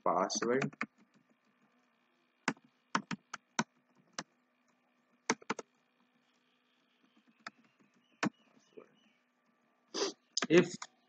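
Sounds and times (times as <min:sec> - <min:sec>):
keyboard typing: 0:00.4 - 0:05.8, 0:07.0 - 0:08.4.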